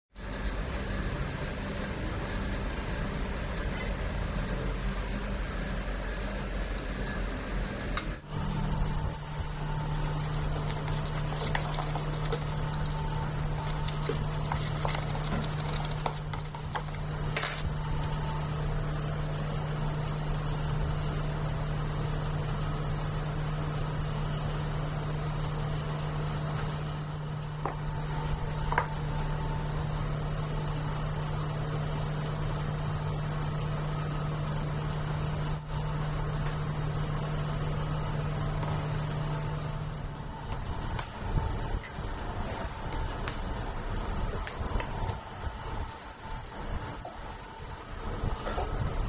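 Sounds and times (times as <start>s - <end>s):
low hum: 0.2s - 49.0s
knife scraping plastic tub: 10.2s - 16.9s.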